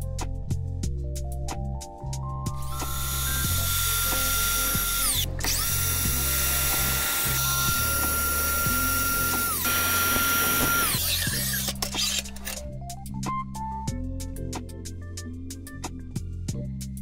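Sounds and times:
background music: 0.0 - 17.0
miter saw cutting metal: 2.6 - 12.6.

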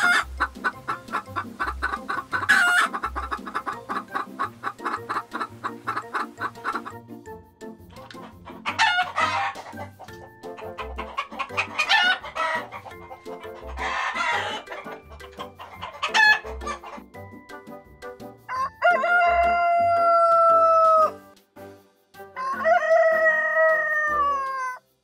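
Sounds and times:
chickens clucking: 0.0 - 7.1, 7.8 - 17.4
faint background music: 0.0 - 25.0
rooster crowing: 13.8 - 14.8, 18.5 - 21.1, 22.4 - 24.8.

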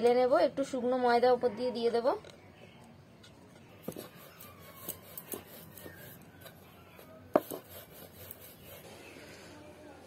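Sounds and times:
rolling pin rubbing dough: 3.7 - 9.3
rolling pin knocking on wood: 7.3 - 7.7.

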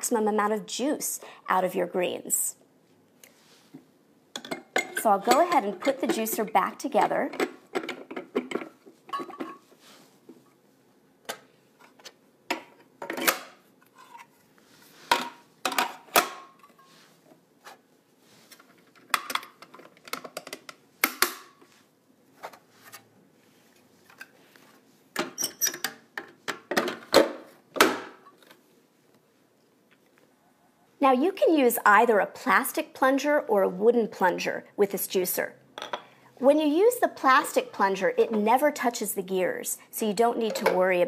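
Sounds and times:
juicer parts clicking and clattering: 4.3 - 9.6.

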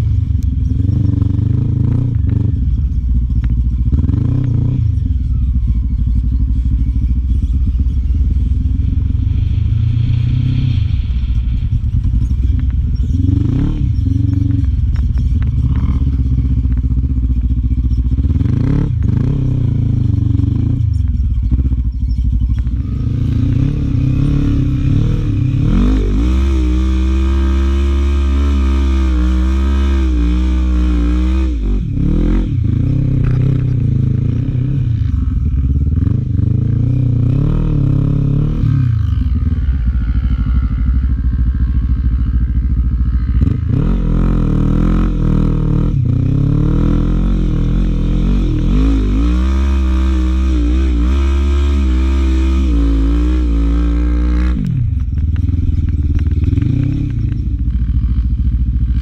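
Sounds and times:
quad engine revving: 12.5 - 59.0.

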